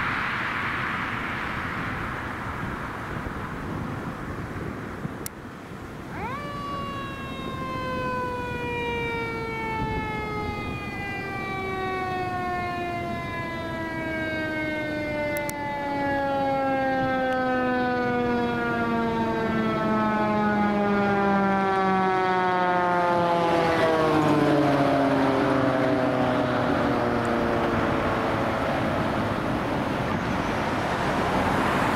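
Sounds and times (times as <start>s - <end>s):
mechanical siren wailing: 5.9s - 30.6s.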